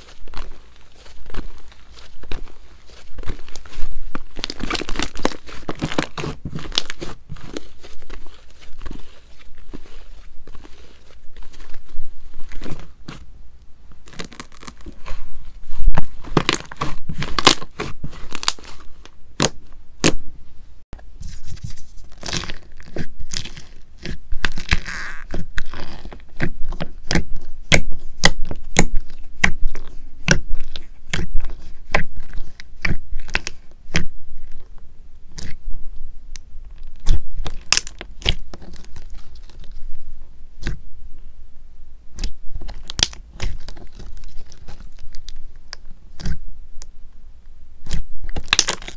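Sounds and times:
hands squishing slime: 0.0s - 13.2s, 14.0s - 20.2s, 21.4s - 34.7s, 35.3s - 35.6s, 36.9s - 39.9s, 40.6s - 40.8s, 42.1s - 46.4s, 47.8s - 48.9s.

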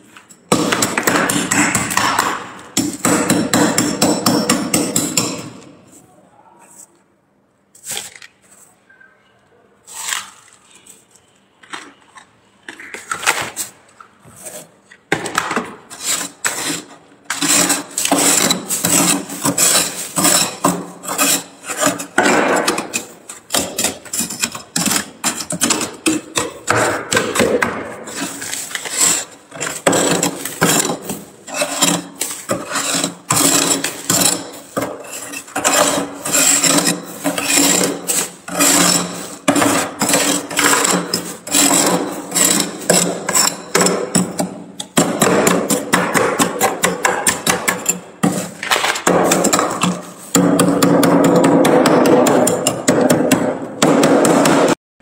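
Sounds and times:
metal scraper scraping frost: 15.9s - 50.4s.

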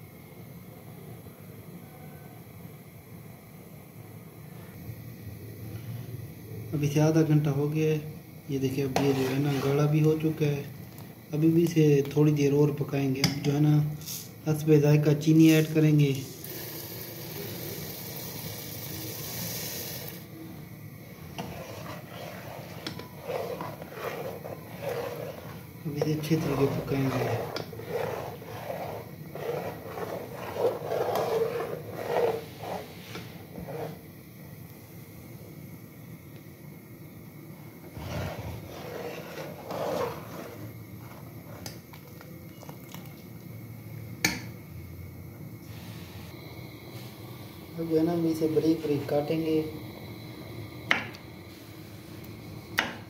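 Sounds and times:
steady hiss: 0.0s - 42.5s, 43.3s - 53.0s
ladle scraping a steel pot: 8.8s - 10.0s, 21.2s - 34.0s, 38.0s - 41.8s.

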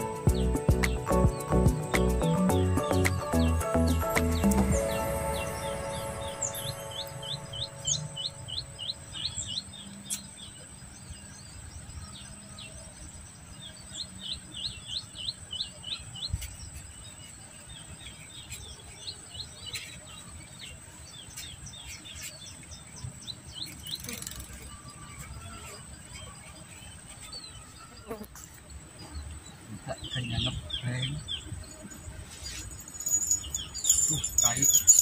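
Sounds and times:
high insect buzz: 0.0s - 11.2s, 14.0s - 35.0s
bird chirping quickly: 21.3s - 24.9s, 29.7s - 35.0s.

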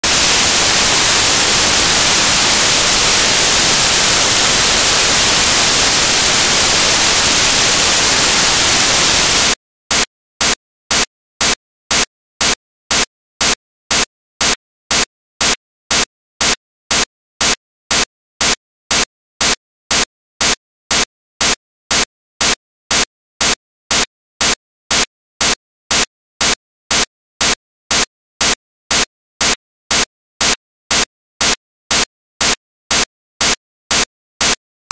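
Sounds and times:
white noise static hiss: 0.0s - 9.5s
pulsing noise bursts: 0.0s - 9.6s.

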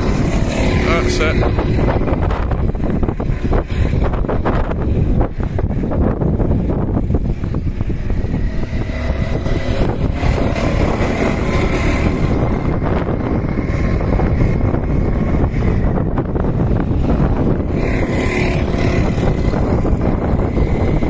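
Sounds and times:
go-kart engines buzzing: 0.0s - 21.0s
wind buffeting microphone: 0.0s - 21.0s.

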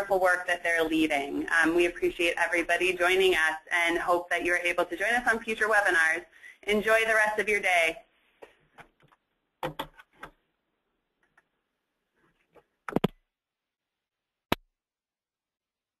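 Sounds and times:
desk handling: 8.8s - 10.4s.

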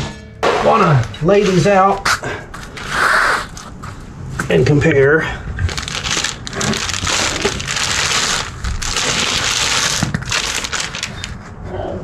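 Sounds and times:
wrapping paper crinkling: 5.6s - 11.4s.

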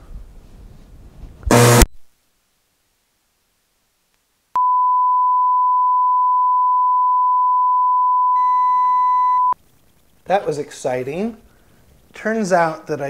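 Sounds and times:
steady test tone beep: 4.6s - 9.6s.

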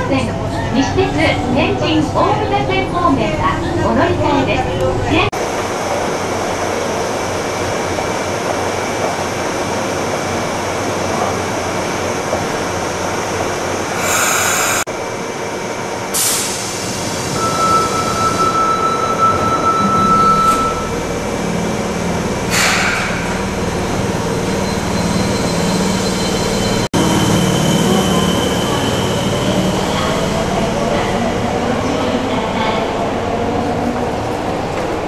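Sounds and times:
subway train rumble: 0.0s - 35.0s
short hisses: 14.0s - 14.8s.

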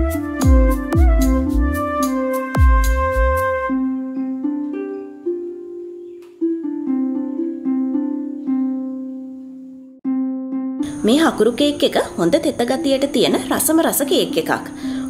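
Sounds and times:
low beat: 0.0s - 4.0s
plucked note melody: 0.0s - 14.4s.

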